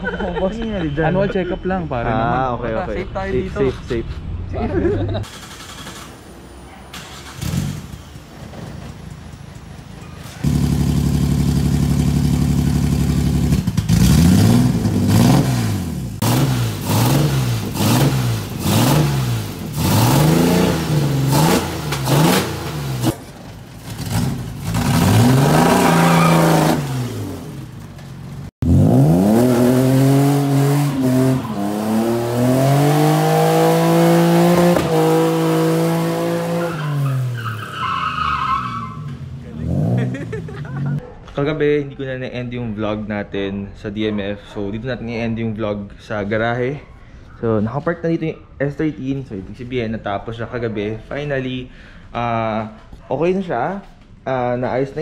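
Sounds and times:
car engine revving: 10.4 - 41.0.

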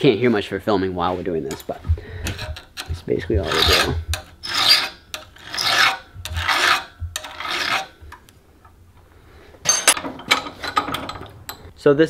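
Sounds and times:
hand file rasping on steel: 2.2 - 8.0.

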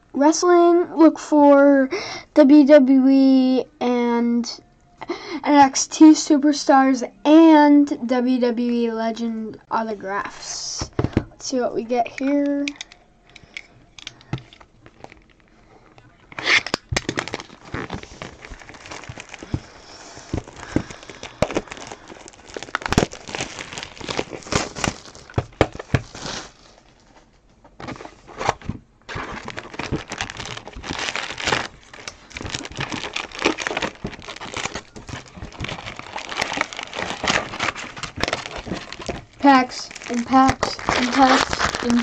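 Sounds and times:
foil packs crinkling: 12.8 - 42.0.

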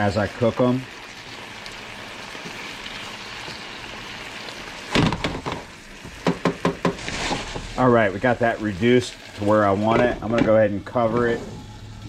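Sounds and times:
food sizzling in a frying pan: 0.0 - 10.4
pan scraping on stove: 6.8 - 7.8.

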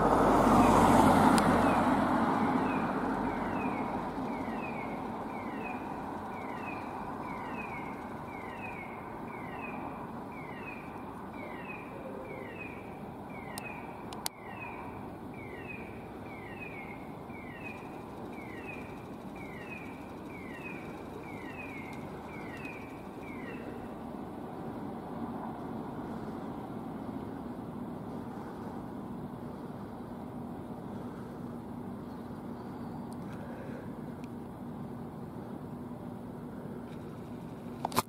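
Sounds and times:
distant traffic hum: 0.0 - 38.0
sharp click: 37.8 - 38.0.

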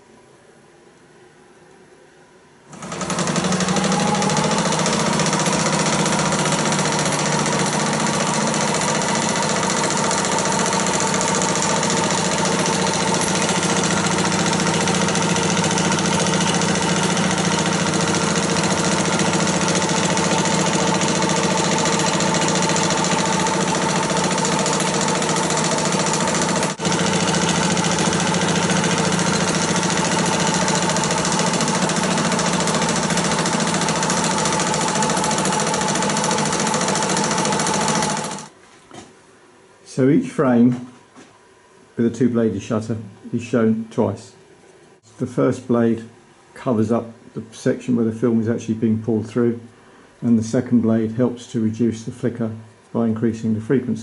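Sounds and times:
projector motor whine: 2.6 - 39.1
film projector mechanism clattering: 2.7 - 38.5.

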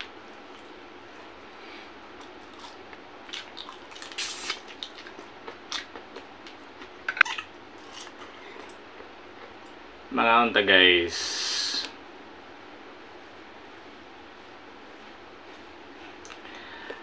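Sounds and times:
wet chewing: 2.2 - 9.6
lip smacks: 16.2 - 17.0.

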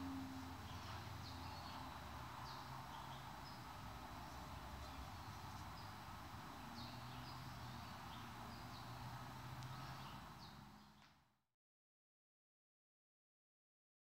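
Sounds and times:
low steady hum: 0.0 - 10.4.

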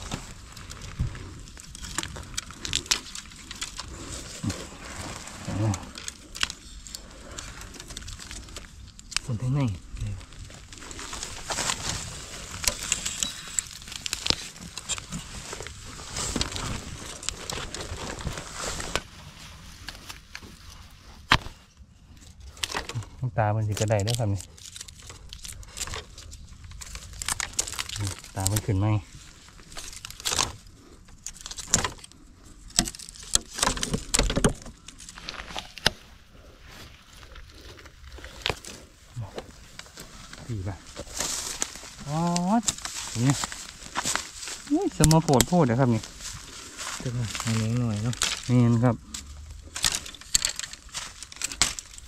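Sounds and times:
twigs and leaves crackling underfoot: 0.0 - 52.0
twigs snapping: 0.0 - 52.0
sharp snaps and knocks: 23.7 - 28.7, 29.6 - 36.0, 47.0 - 52.0.

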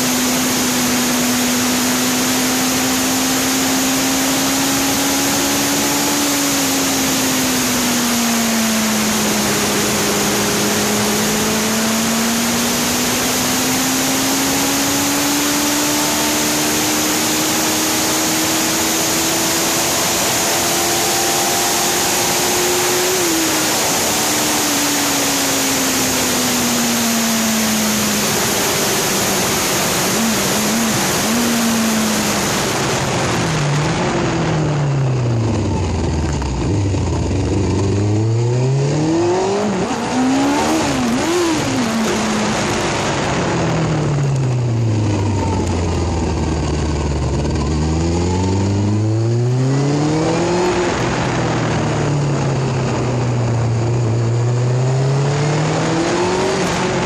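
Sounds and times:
motorbike engine: 0.0 - 57.0
wind rush on microphone: 39.6 - 47.6.

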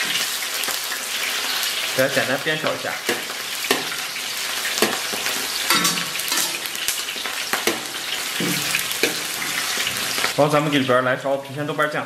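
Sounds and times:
food sizzling in hot oil: 0.0 - 12.0
metal spatula scraping wok: 3.0 - 10.8.

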